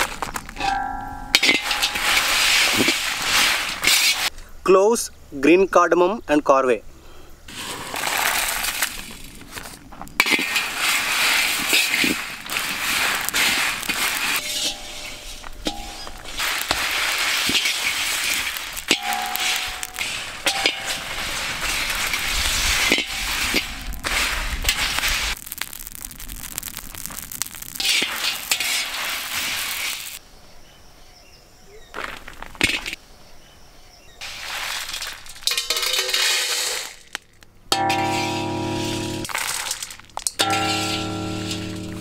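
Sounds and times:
metal skimmer scraping: 0.6 - 4.3, 10.2 - 25.3, 37.7 - 42.0
spices crackling while roasting: 1.3 - 4.4, 7.5 - 30.2, 34.2 - 42.0.

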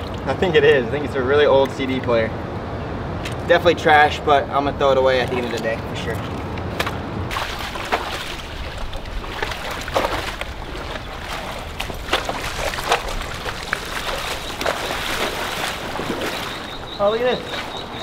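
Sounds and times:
wading through shallow water: 0.0 - 0.4, 5.2 - 18.0.

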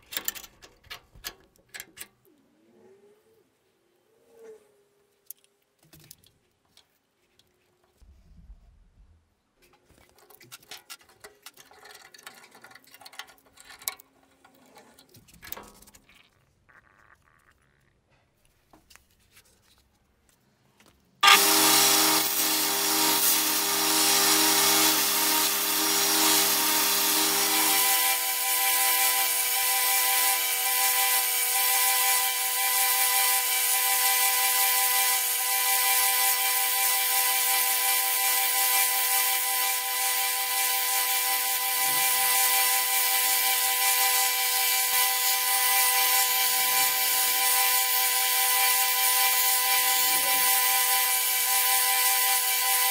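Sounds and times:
belt grinder running: 21.2 - 52.9.

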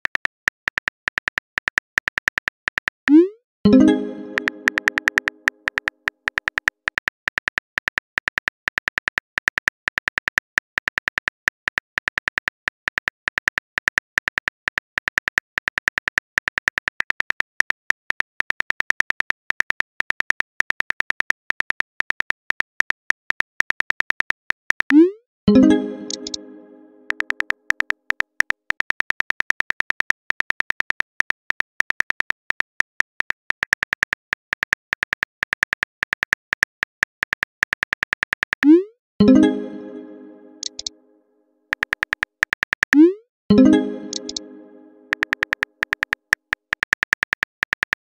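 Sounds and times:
phone keyboard clicks: 0.0 - 3.2, 4.4 - 24.9, 27.1 - 38.7, 40.6 - 40.9, 41.8 - 43.0, 43.7 - 44.5, 45.1 - 48.0
message chime: 3.1 - 5.5, 25.5 - 27.3, 39.2 - 41.0, 43.0 - 45.3.

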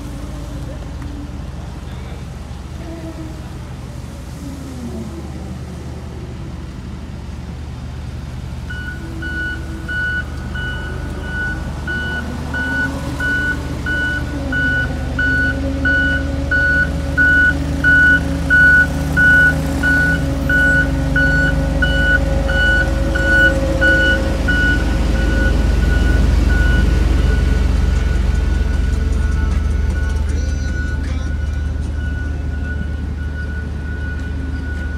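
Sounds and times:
road roller diesel engine rumble: 0.0 - 34.9
reversing alarm beeping: 8.7 - 34.9.

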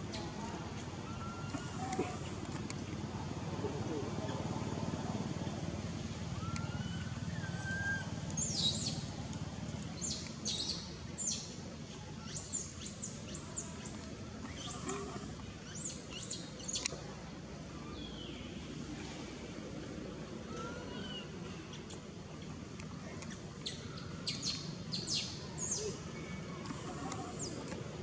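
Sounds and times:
outdoor background noise: 0.0 - 28.0.

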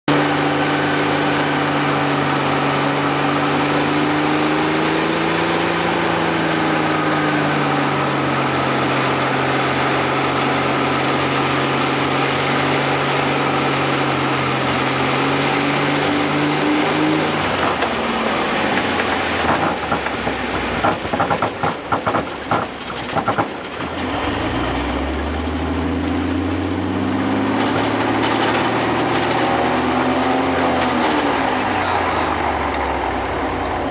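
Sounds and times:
wheels rattling and thumping on ground: 17.2 - 24.1, 27.4 - 33.0
plane engine and propeller droning: 27.7 - 33.9.

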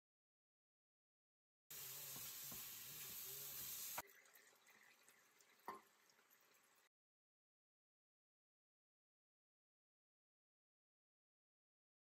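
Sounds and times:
chicken sizzling in pan: 1.7 - 6.8.

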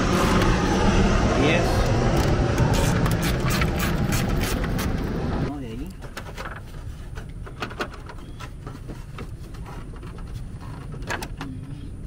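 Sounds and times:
steady low rumble: 0.0 - 6.0.

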